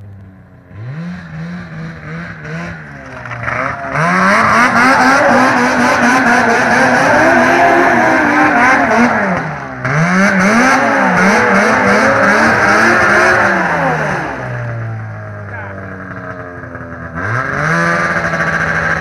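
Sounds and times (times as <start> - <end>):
snowmobile engine revving: 0.4 - 19.0.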